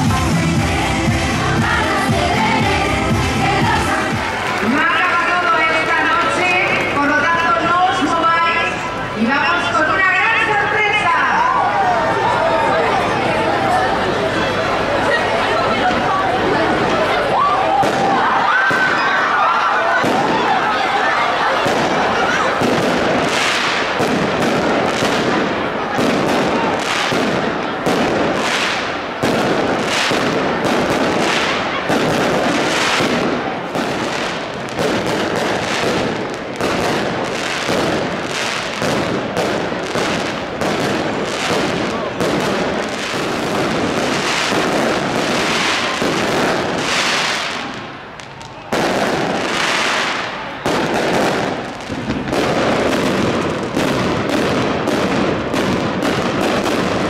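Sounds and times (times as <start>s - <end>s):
fireworks bangs and crackles: 0.0s - 11.2s, 15.0s - 57.0s.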